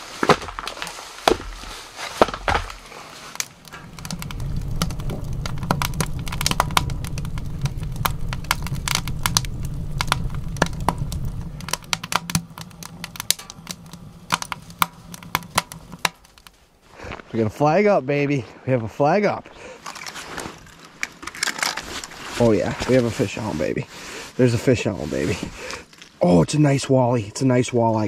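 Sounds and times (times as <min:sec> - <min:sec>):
logs knocking together: 0:00.0 - 0:16.5
wood fire crackling and popping: 0:00.0 - 0:27.1
low steady rumble: 0:03.7 - 0:16.1.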